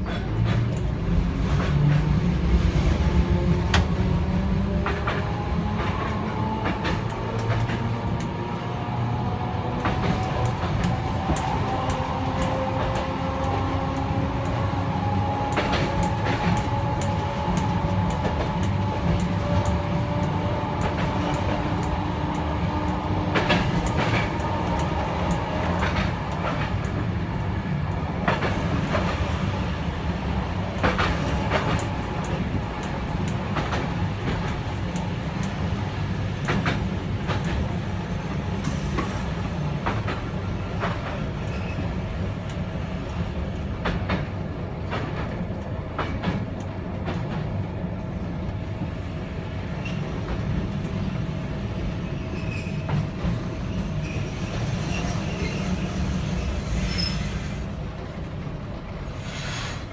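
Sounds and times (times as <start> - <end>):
wheels clicking over rail joints: 0.0 - 47.9
tram rumble with whine: 0.0 - 59.9.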